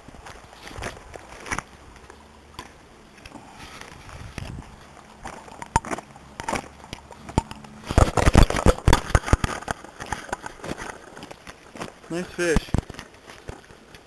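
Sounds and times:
camera handling knocks and rubbing: 5.2 - 11.9.

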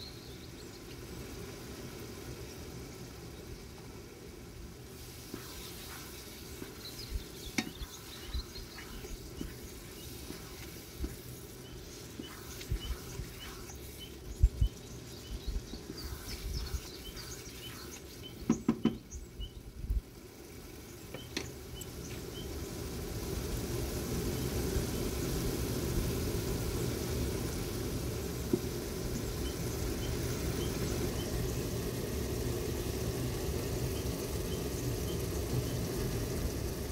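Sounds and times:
food sizzling in a frying pan: 0.0 - 36.9
wooden spatula scraping a pan: 5.2 - 13.8.

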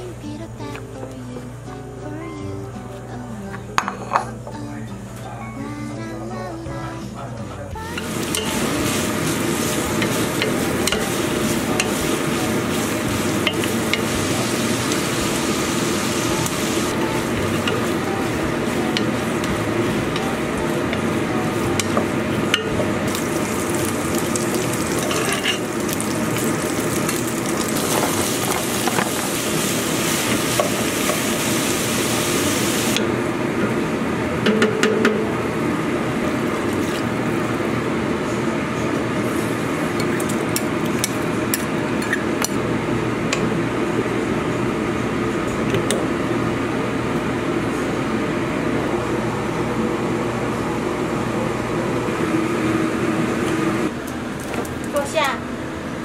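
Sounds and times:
steady hum: 0.0 - 56.0
beef sizzling in a pot: 7.8 - 33.0.

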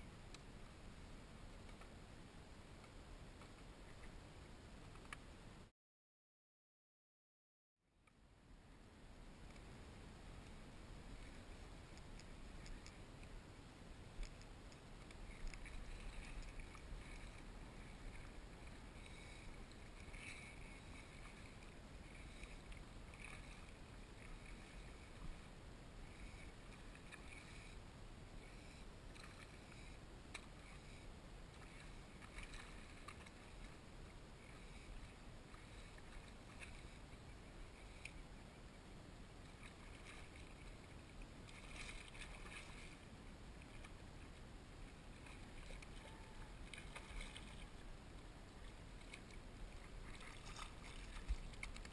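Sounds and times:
light ticks and splashes: 1.6 - 2.0, 4.8 - 5.3, 9.4 - 9.8, 10.4 - 13.4, 14.1 - 27.8, 28.4 - 38.5, 39.4 - 51.9
wavelets lapping against kayak hull: 14.2 - 25.5, 28.5 - 38.2, 39.5 - 44.4, 45.1 - 47.9, 48.6 - 51.9.

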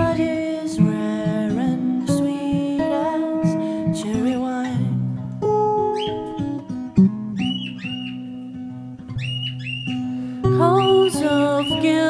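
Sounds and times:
acoustic guitar music: 0.0 - 12.0
parrot calls: 7.4 - 8.4, 9.2 - 10.1.

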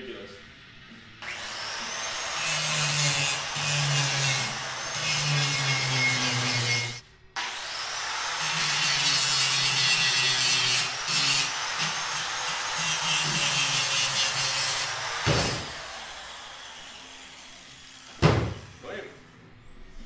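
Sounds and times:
wire wheel grinder scrubbing metal: 1.2 - 18.1
knock: 18.2 - 18.6.

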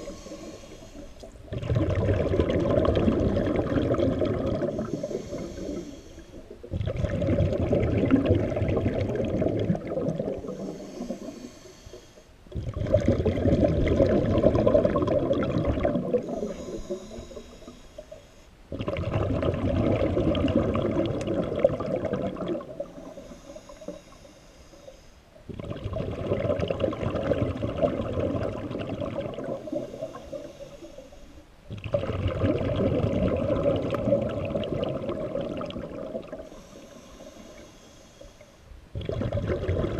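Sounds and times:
regulator inhalation hiss: 0.0 - 1.4, 4.6 - 6.6, 10.4 - 12.4, 16.2 - 18.6, 22.8 - 25.4, 29.6 - 31.5, 36.4 - 38.7
bubbling underwater exhalations: 0.0 - 11.4, 12.5 - 17.0, 18.7 - 23.1, 25.5 - 30.1, 31.7 - 36.7, 38.9 - 39.9.

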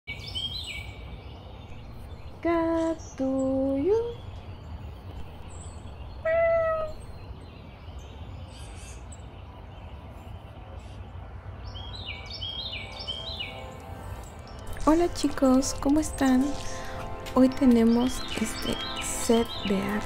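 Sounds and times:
low steady background rumble: 0.7 - 11.6
cat meow: 6.2 - 7.0.

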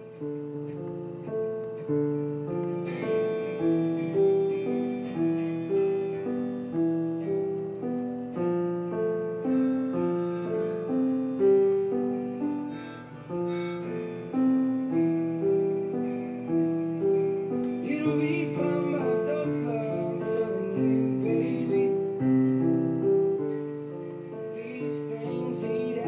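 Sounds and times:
slow piano playing: 0.0 - 26.0.

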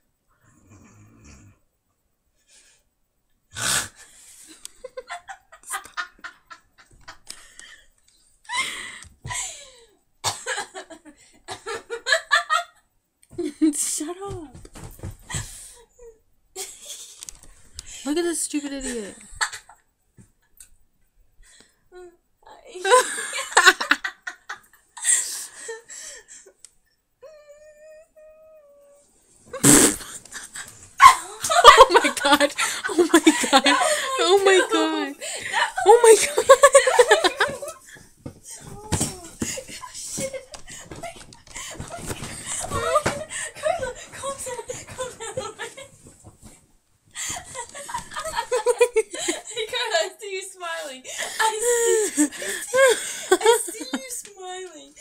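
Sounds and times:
girl giggling: 30.5 - 46.0, 47.2 - 50.2, 51.2 - 54.6
girl squealing laughs: 31.0 - 32.3.

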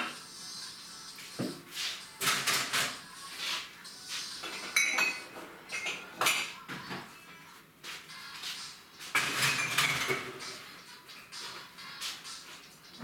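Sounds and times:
dishes and cutlery clinking: 2.2 - 3.0, 4.4 - 7.2, 9.0 - 12.2.

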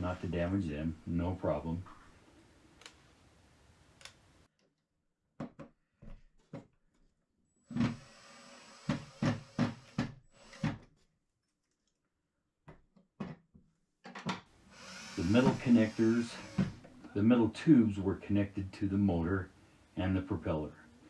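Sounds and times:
cordless drill running: 7.9 - 10.7, 14.7 - 16.9.

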